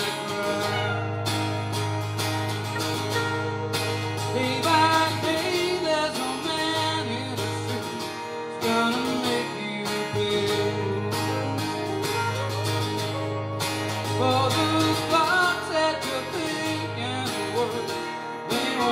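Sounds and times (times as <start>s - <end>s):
guitar lead with bending notes: 0.0s - 18.9s
strummed guitar rhythm: 0.0s - 18.9s.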